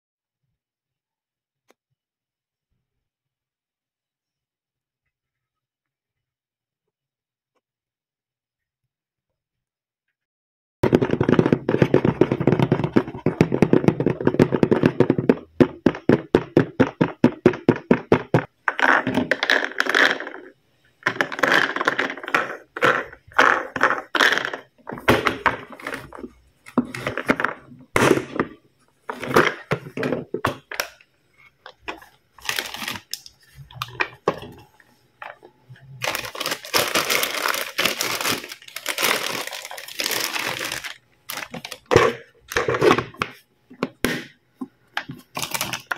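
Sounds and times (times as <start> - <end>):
plastic bags crinkling: 31.6 - 42.9, 45.2 - 45.9.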